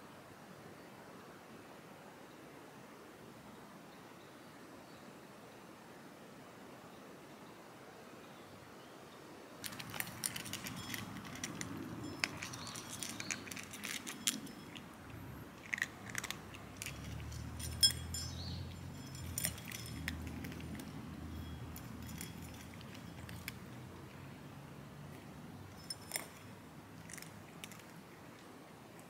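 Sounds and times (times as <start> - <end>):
metal dishes clinking: 9.6 - 23.8, 25.7 - 27.8
cats chewing and lapping: 9.6 - 29.0.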